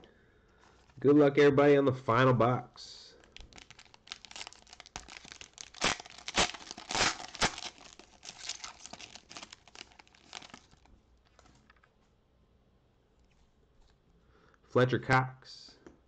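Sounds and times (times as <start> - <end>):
foil wrapper tearing and crinkling: 3.2 - 11.5.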